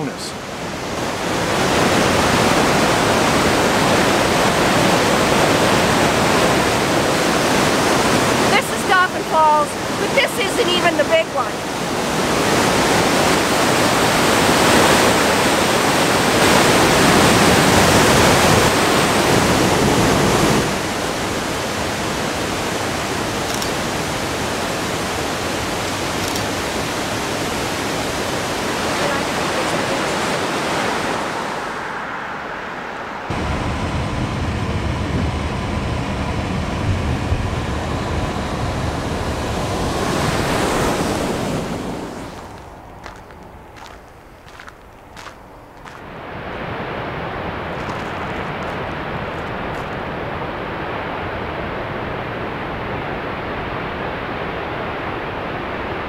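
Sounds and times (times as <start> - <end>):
waterfall rushing: 0.0 - 33.9, 37.8 - 56.0.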